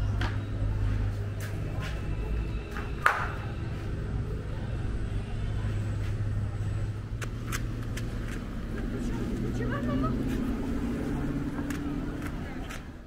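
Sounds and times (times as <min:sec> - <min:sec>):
low street rumble: 0:00.0 - 0:13.0.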